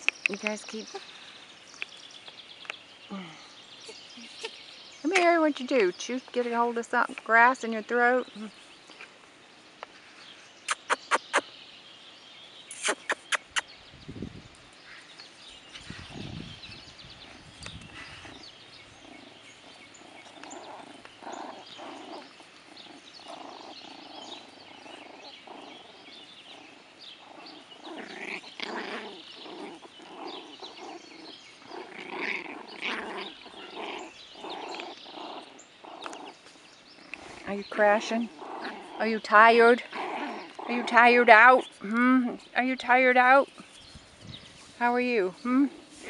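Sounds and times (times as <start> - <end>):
puppies play calls: 12.7 - 13.9, 14.5 - 46.0.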